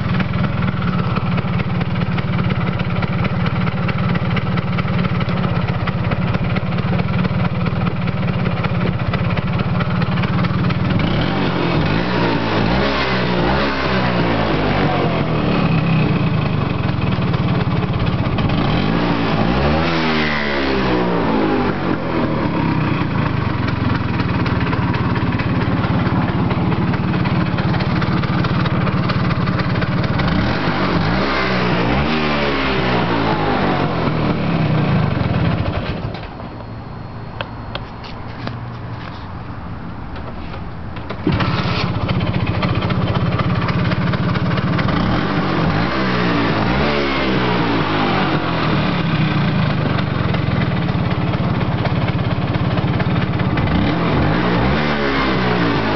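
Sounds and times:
two-stroke scooter engine running: 0:00.0 - 0:36.7, 0:40.1 - 0:55.9.

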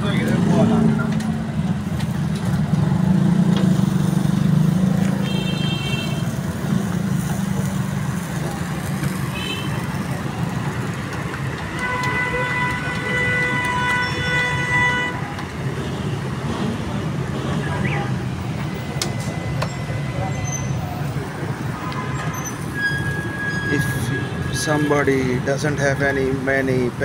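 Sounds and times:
street traffic rumble: 0:00.0 - 0:27.0
vehicle horns honking: 0:05.1 - 0:06.4, 0:09.3 - 0:09.9, 0:11.7 - 0:15.4.

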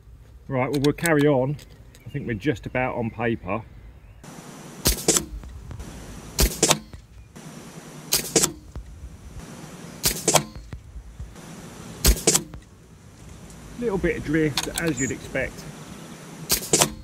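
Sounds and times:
air rifle shots: 0:04.2 - 0:12.8, 0:16.2 - 0:17.0.

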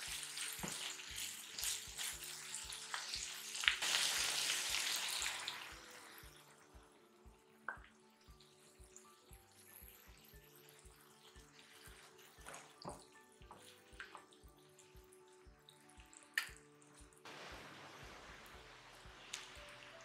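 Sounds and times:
garlic and onion sizzling in pan: 0:00.0 - 0:07.6, 0:17.3 - 0:20.0
faint background music: 0:00.0 - 0:20.0.

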